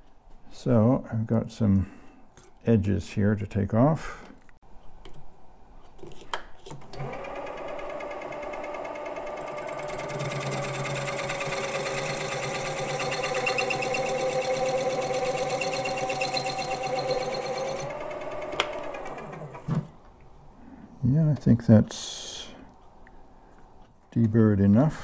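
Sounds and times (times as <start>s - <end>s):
lathe motor whine: 7.0s - 19.6s.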